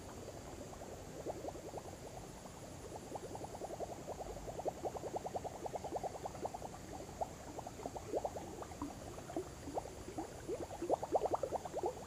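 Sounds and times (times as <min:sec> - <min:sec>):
faint high-pitched hum: 0:00.0 - 0:12.0
frogs croaking: 0:00.0 - 0:12.0.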